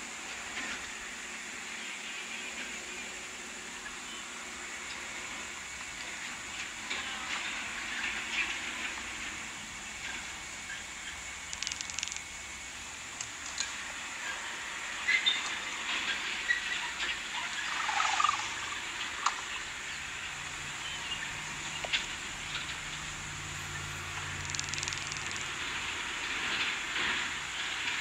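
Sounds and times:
outdoor ambience hiss: 0.0s - 28.0s
short clicks: 11.5s - 12.3s, 24.4s - 25.6s.

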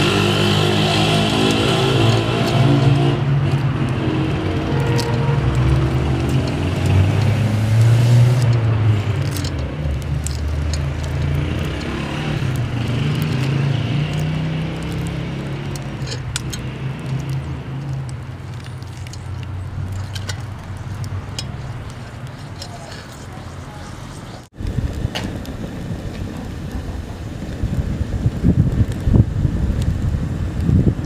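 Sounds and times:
eggshells cracking: 0.0s - 24.2s.

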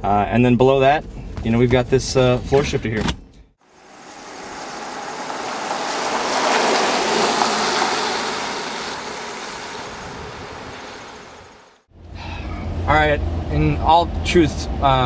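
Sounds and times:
tyres hissing on wet road: 3.6s - 11.9s.

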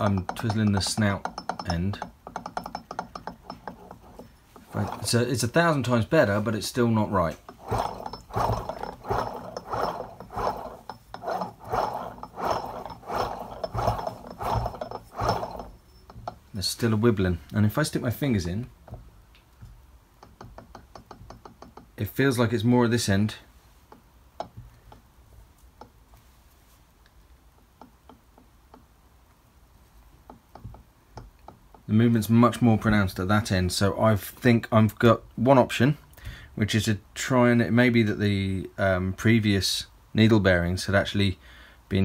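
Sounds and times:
supercharger rotors whirring and rattling: 0.0s - 5.6s, 7.1s - 16.5s.

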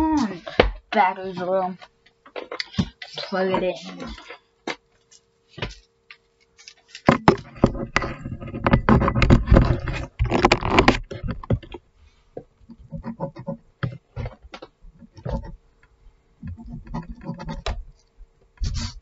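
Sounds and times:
device handling knocks and scrapes: 7.0s - 11.8s, 16.4s - 18.0s.

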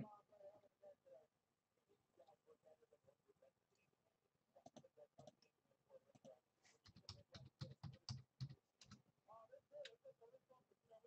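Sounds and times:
faint clicks and taps: 4.6s - 9.1s, 9.8s - 10.0s.

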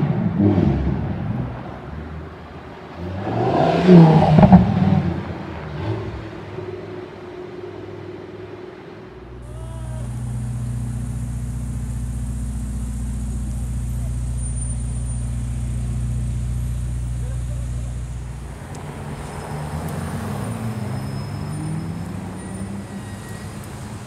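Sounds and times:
sports car engine revving past: 2.9s - 6.6s
sports car engine idling: 7.7s - 19.6s.

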